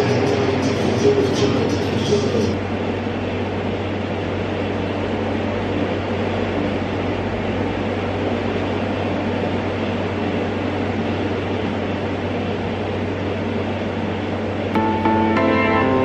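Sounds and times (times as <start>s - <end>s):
low hum: 10.5s - 16.0s.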